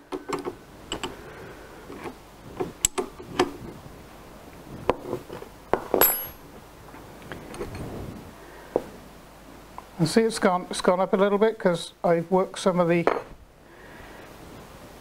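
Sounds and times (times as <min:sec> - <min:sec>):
spanners clinking on metal nuts: 0:06.0 - 0:06.4.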